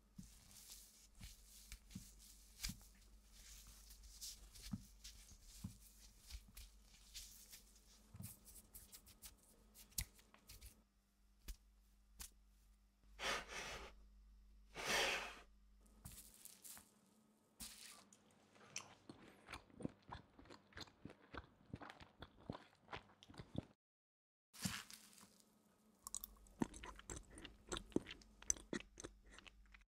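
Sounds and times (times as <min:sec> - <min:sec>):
person chewing food: 0:18.6 - 0:23.8, 0:26.0 - 0:29.8.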